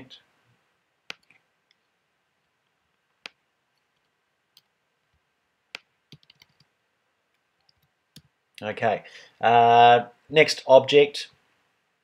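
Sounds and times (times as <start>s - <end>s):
mouse clicks: 1.1s - 1.8s, 3.2s - 4.7s.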